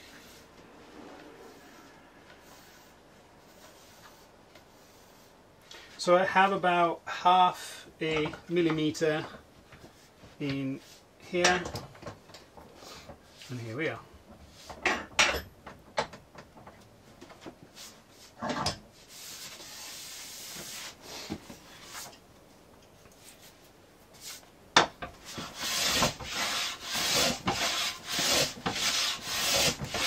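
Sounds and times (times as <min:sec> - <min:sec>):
hand plane shaving wood: 0:25.2 - 0:30.0.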